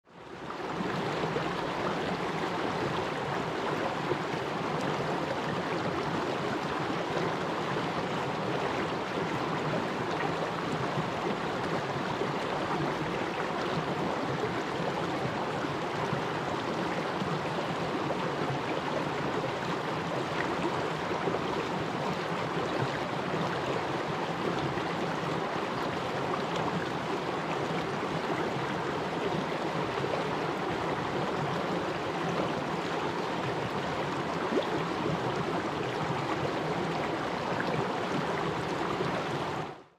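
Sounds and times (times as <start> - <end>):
stream flowing over rocks: 0.1 - 39.9.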